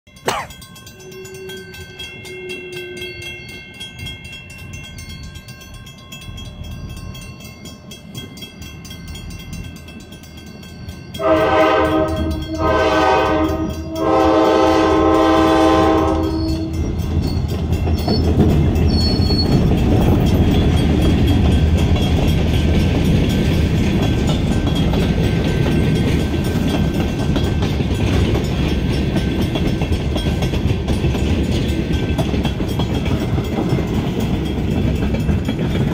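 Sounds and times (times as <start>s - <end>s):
railroad crossing bell ringing: 0.1s - 35.9s
freight train rumbling past: 0.2s - 35.9s
locomotive horn blasts: 11.2s - 16.8s.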